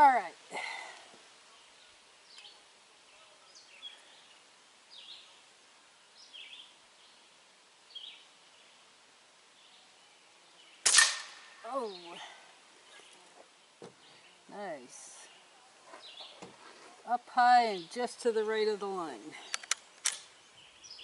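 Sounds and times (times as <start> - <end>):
faint bird chirps: 1.5 - 5.5.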